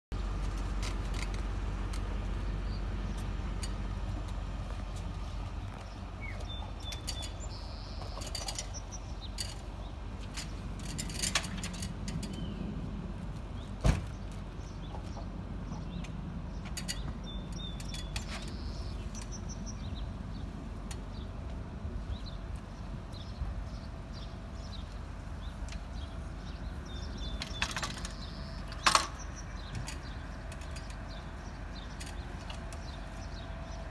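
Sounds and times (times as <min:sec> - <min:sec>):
bird chirping: 0:05.3 - 0:11.2, 0:12.2 - 0:12.8, 0:13.5 - 0:21.4, 0:22.0 - 0:33.9.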